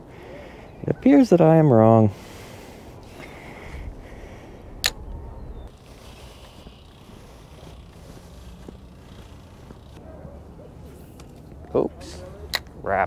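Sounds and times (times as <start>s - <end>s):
bicycle rolling on pavement: 2.1s - 12.5s
wind on microphone: 3.0s - 10.0s.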